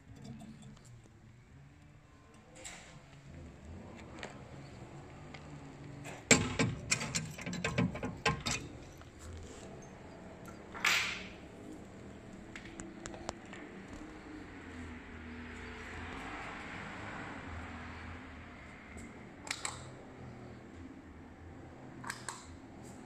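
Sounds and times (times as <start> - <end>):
clicks and clatters: 5.3 - 9.6
metal key safe clacking shut: 6.3 - 8.8.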